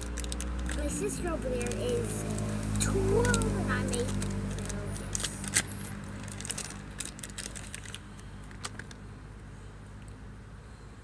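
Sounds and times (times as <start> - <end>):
plastic items clicking and rattling: 0.0 - 2.5, 3.1 - 9.0.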